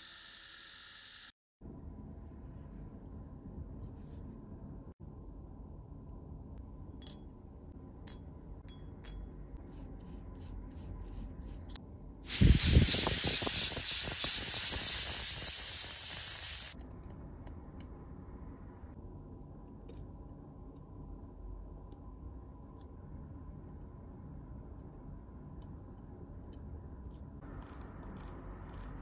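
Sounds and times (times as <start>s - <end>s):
tweezers clicking on metal parts: 27.6s - 29.0s.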